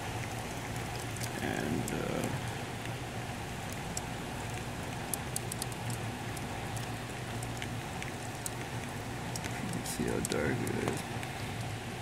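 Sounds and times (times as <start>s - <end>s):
raindrops ticking: 3.6s - 11.3s.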